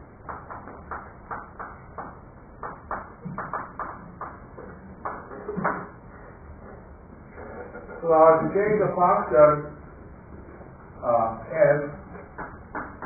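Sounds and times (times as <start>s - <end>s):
chalk tapping and scraping: 0.3s - 5.9s.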